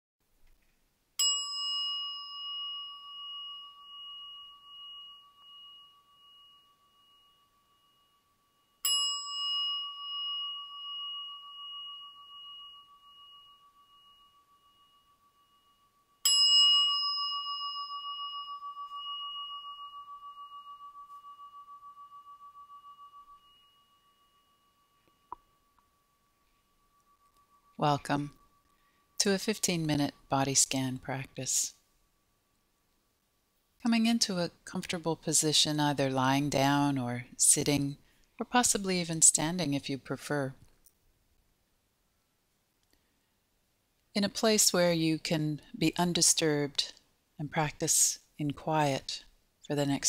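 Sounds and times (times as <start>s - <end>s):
meditation bell ringing: 1.2s - 33.3s.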